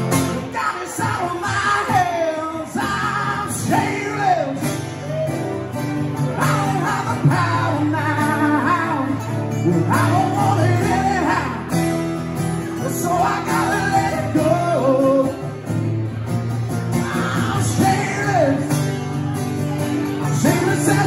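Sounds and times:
electric guitar: 0.0s - 21.0s
strummed acoustic guitars: 0.0s - 21.0s
men singing: 0.3s - 4.7s, 6.4s - 11.7s, 12.8s - 15.5s, 17.0s - 18.7s, 20.2s - 21.0s.

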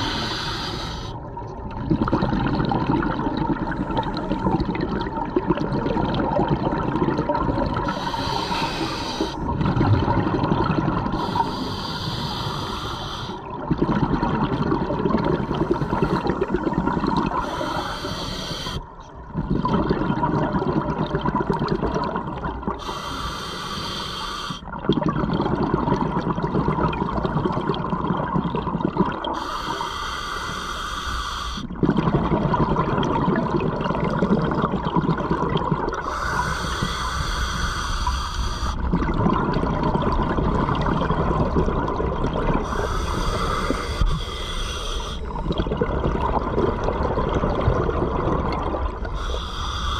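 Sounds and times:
hissing regulator inhale: 0.0s - 1.2s, 7.9s - 9.4s, 11.1s - 13.4s, 17.3s - 18.9s, 22.8s - 24.6s, 29.4s - 31.7s, 36.0s - 38.9s, 42.6s - 45.5s, 49.1s - 49.9s
bubbling exhaled air: 0.0s - 49.9s.

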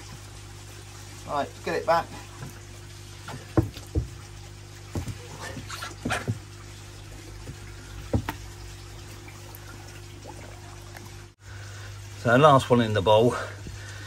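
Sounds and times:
water splashing: 1.1s - 11.4s.

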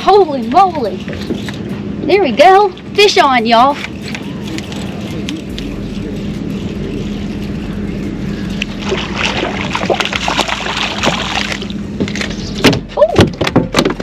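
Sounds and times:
steady low hum: 0.0s - 14.0s
fish thrashing splashes: 8.7s - 12.3s.

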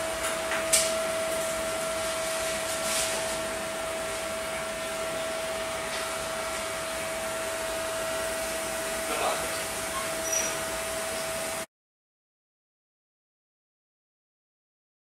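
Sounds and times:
ventilation fan whirring: 0.0s - 11.7s.

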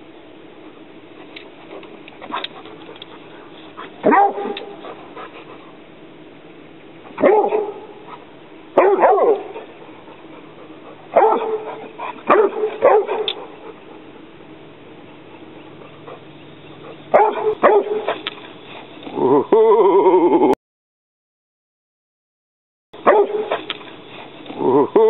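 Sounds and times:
dog barking: 4.0s - 4.9s, 7.2s - 8.2s, 8.8s - 9.8s, 11.1s - 13.6s, 16.8s - 18.2s, 23.0s - 23.8s.

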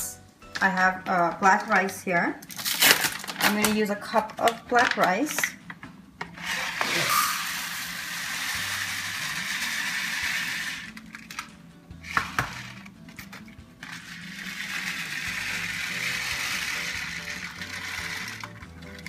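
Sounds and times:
rice grains pouring: 6.6s - 8.8s.

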